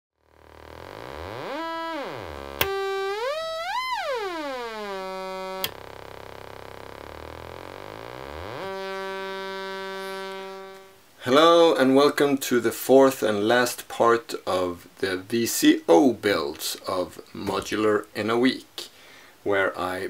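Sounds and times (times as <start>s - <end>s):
buzzy synth tone gliding in pitch: 0.2s - 11.0s.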